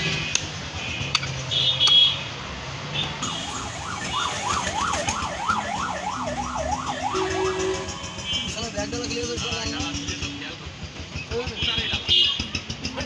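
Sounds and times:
street noise: 0:00.0 - 0:13.0
siren yelping: 0:03.2 - 0:08.5.

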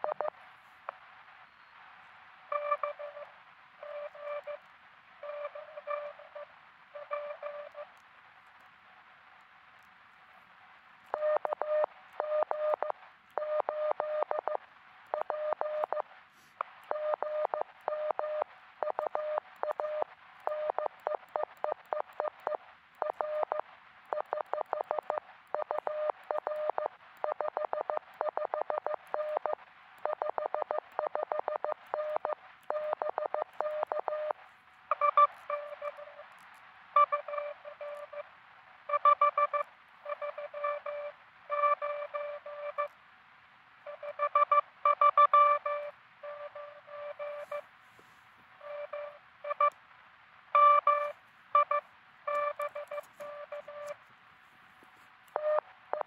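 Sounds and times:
receiver hiss: 0:00.0 - 0:56.0
lower morse code tone: 0:02.5 - 0:04.6, 0:05.2 - 0:07.9, 0:34.9 - 0:36.2, 0:37.0 - 0:38.2, 0:38.9 - 0:42.9, 0:43.9 - 0:47.6, 0:48.6 - 0:49.7, 0:50.6 - 0:54.0
morse code tones: 0:34.9 - 0:36.2, 0:43.9 - 0:47.6, 0:48.6 - 0:49.7, 0:50.6 - 0:54.0.

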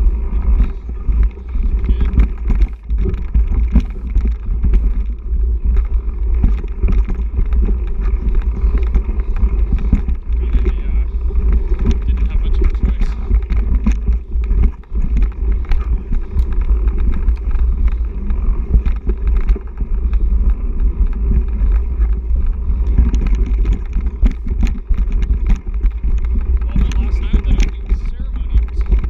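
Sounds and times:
bike rattling: 0:00.0 - 0:29.0
wind rumble on microphone: 0:00.0 - 0:29.0.

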